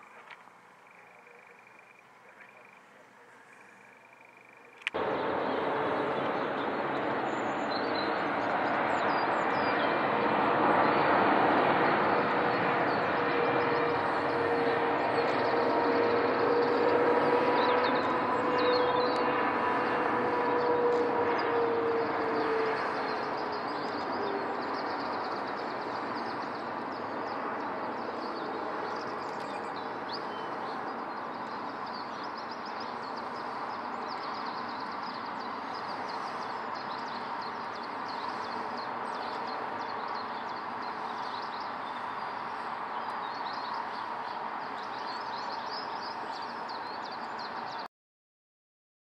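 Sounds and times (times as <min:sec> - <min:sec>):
distant jet engine rumble: 0:00.0 - 0:47.9
small birds chirping: 0:22.7 - 0:47.8.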